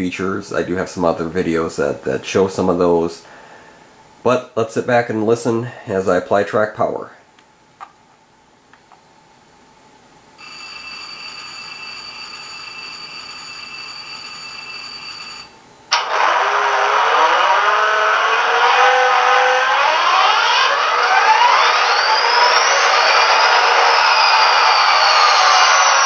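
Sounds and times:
diesel engine starting and running: 0:15.9 - 0:26.0
rising whines: 0:15.9 - 0:26.0
steady drone with held tones: 0:15.9 - 0:26.0.

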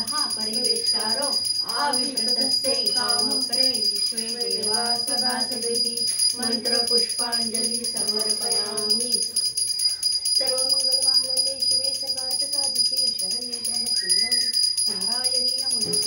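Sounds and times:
devotional singing: 0:00.0 - 0:09.5
hand bell ringing rapidly: 0:00.0 - 0:16.0.

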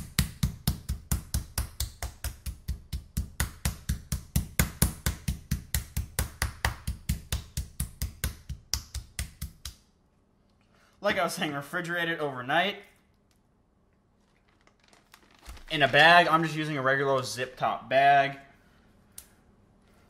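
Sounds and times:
meat mallet pounding chicken: 0:00.0 - 0:09.8.

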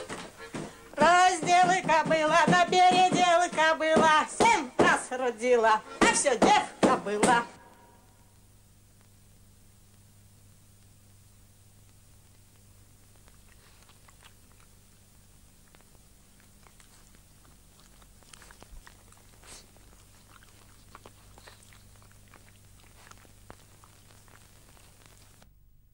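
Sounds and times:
crackling clicks: 0:07.3 - 0:25.5.

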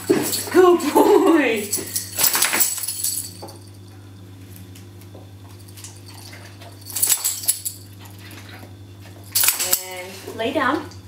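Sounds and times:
steady low hum: 0:00.0 - 0:11.0
light clinking and rustling: 0:05.4 - 0:10.3.

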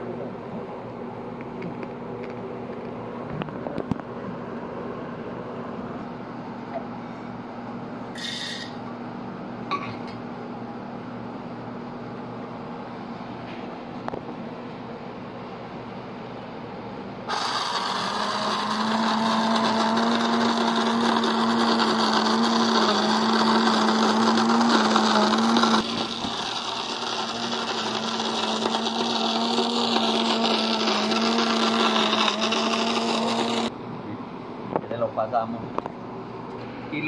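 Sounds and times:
coffee grinder grinding beans: 0:17.3 - 0:33.7.

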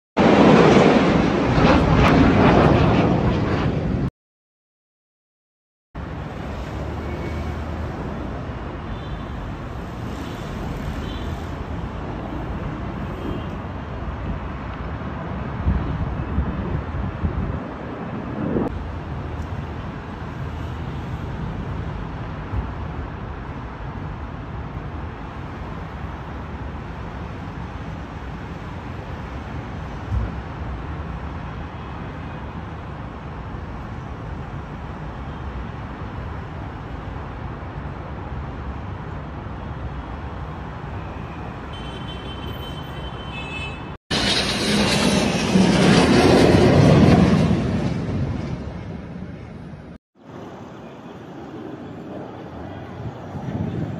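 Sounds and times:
distant jet rumble: 0:00.2 - 0:04.1, 0:44.1 - 0:53.9
jet low pass overhead: 0:00.2 - 0:04.1, 0:15.5 - 0:18.8, 0:44.1 - 0:53.9.

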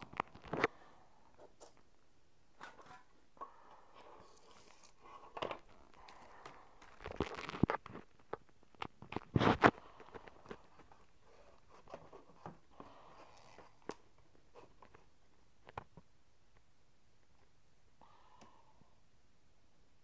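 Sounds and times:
crackling rustles: 0:04.0 - 0:16.0.

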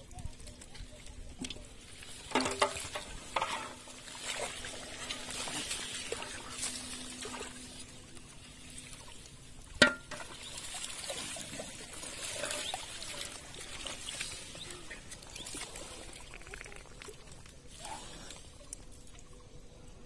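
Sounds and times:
pond water splashing and trickling: 0:00.0 - 0:20.0
bottle knocking in metal basin: 0:09.8 - 0:10.2.

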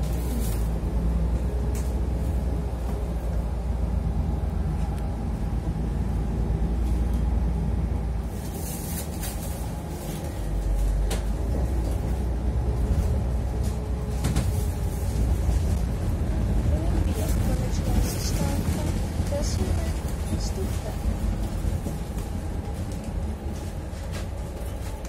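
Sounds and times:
bus low rumble: 0:00.0 - 0:25.0.

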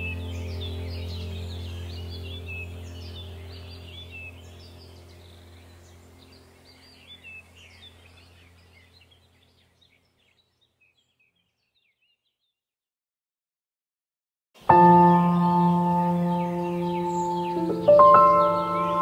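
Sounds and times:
low steady music drone: 0:00.0 - 0:09.5, 0:14.6 - 0:19.0
birds chirping: 0:00.0 - 0:12.6, 0:14.6 - 0:19.0.

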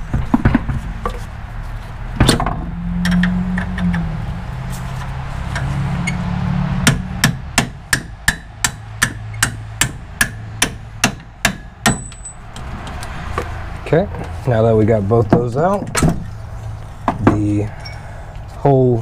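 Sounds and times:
hammer striking steel punch: 0:06.8 - 0:12.4.

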